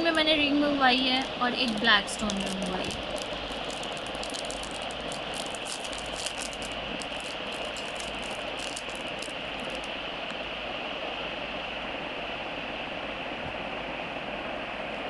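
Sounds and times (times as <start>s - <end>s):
steady background hiss: 0.0s - 15.0s
plastic wrapping crinkling: 1.2s - 9.9s.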